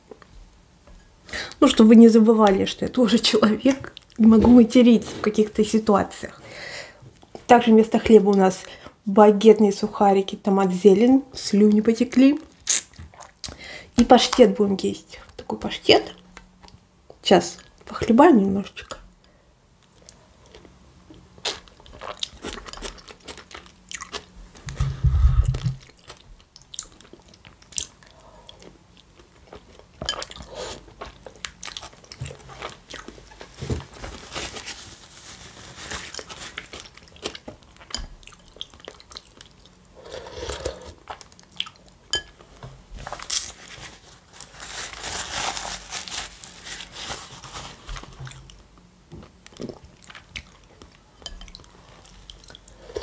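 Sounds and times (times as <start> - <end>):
crunching and chewing: 19.8 - 24.8, 25.6 - 33.7, 35.7 - 42.0
slurping soup: 40.0 - 41.0.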